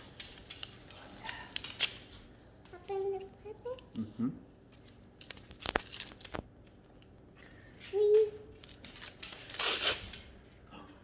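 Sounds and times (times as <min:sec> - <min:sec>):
wrapping paper crinkling and tearing: 0:00.3 - 0:02.2, 0:04.7 - 0:07.1, 0:08.5 - 0:10.4
loud paper rip: 0:08.9 - 0:10.3.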